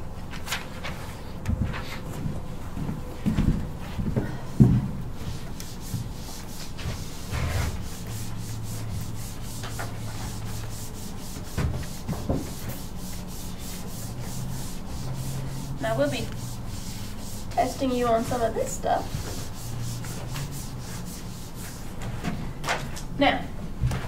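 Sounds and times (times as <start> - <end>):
steady low hum: 0.0 - 24.0
eraser rubbing on whiteboard: 5.2 - 22.0.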